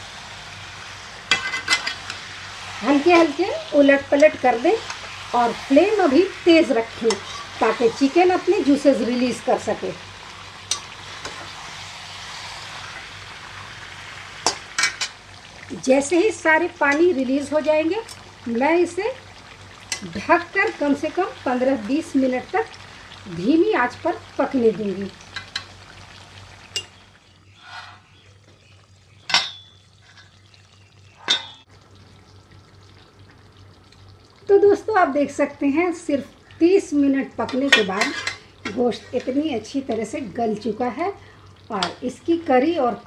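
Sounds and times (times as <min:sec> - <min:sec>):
chicken sizzling in hot oil: 0:00.0 - 0:43.0
lid scraping: 0:27.6 - 0:28.1.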